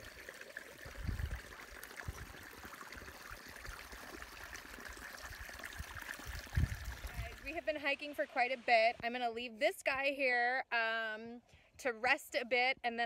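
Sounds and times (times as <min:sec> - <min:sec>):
creek trickling over rocks: 0:00.0 - 0:09.5.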